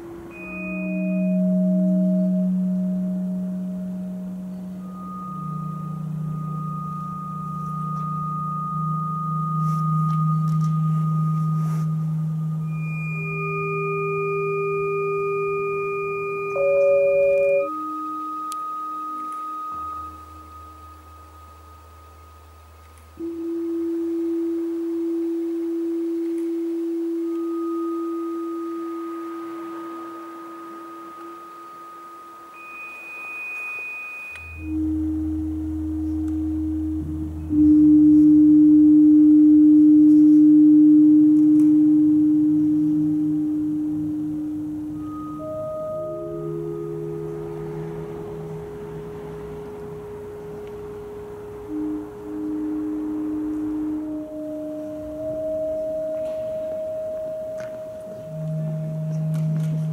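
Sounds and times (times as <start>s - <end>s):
low drone: 0.0s - 59.9s
low hum: 0.0s - 59.9s
thin high tone: 0.0s - 59.9s.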